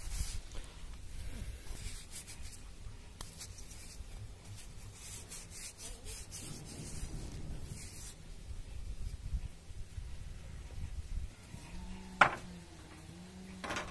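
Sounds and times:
paper towel rubbing wood: 3.2s - 8.2s.

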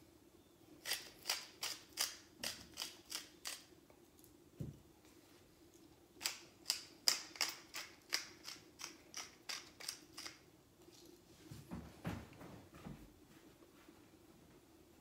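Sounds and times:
pepper mill grinding and clicking: 0.8s - 3.7s, 6.2s - 10.4s.

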